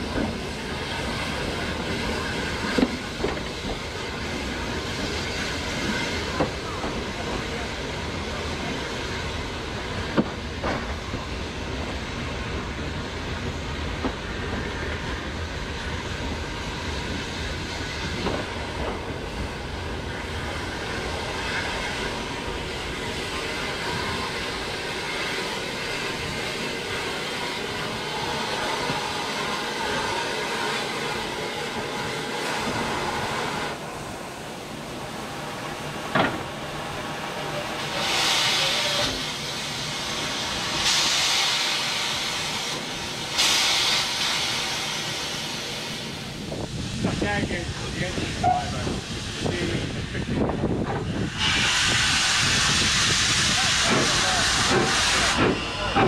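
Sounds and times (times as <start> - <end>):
steam hiss: 0.0 - 56.0
wheels rumbling on track: 45.6 - 56.0.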